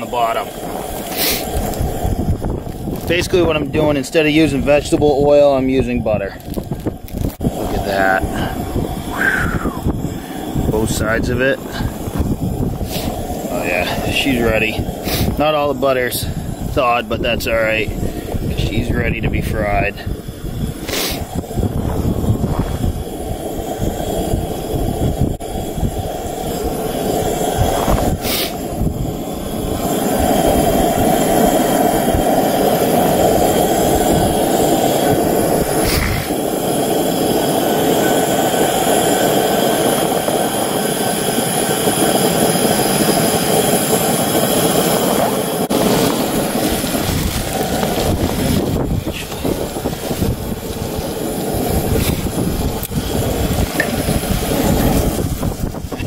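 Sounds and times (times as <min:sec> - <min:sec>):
fish frying in butter: 0:00.0 - 0:22.2.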